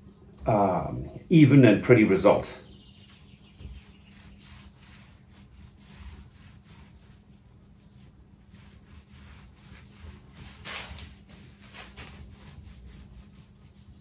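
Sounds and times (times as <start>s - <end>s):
paint roller rubbing strokes: 0.5s - 14.0s.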